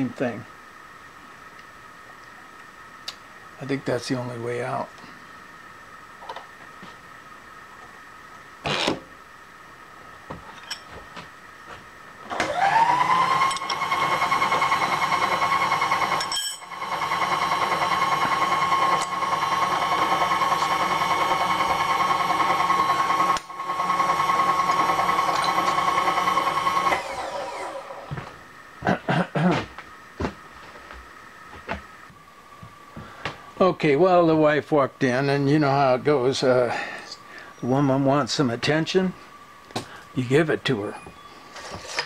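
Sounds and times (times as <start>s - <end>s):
power tool motor whining: 12.3s - 28.3s.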